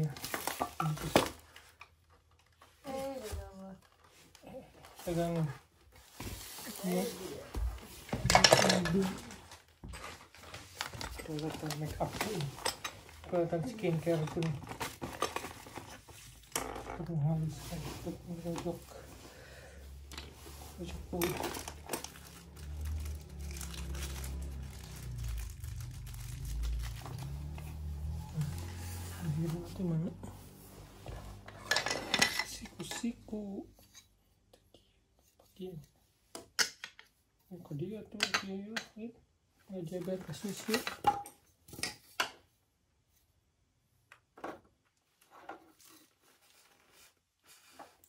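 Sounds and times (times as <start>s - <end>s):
faint handling sounds: 0.0s - 36.3s, 44.8s - 48.0s
plastic wrapping crinkling: 20.5s - 29.6s.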